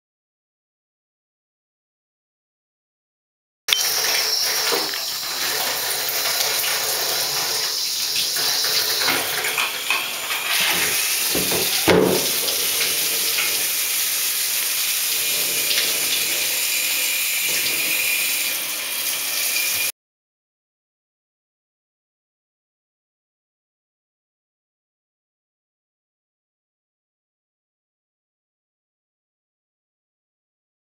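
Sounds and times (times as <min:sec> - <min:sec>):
water running into a bathtub: 0:03.7 - 0:19.9
knock: 0:11.3 - 0:12.5.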